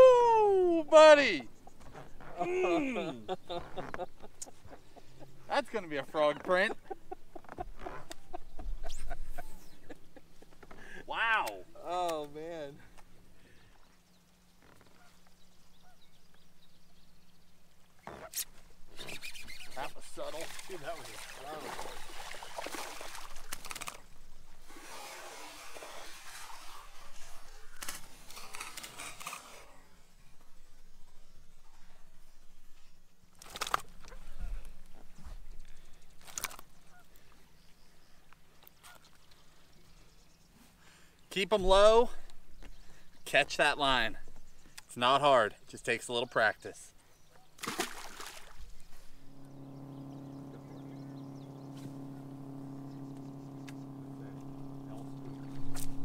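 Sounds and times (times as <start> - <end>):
rough noisy background: 18.0 - 29.8, 48.6 - 56.0
electric trolling motor humming: 18.6 - 33.1, 48.4 - 56.0.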